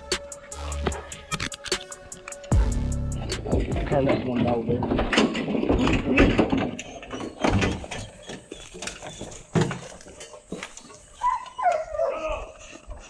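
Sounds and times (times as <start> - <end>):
dogs jostling: 4.0 - 13.0
dog whining: 11.2 - 12.6.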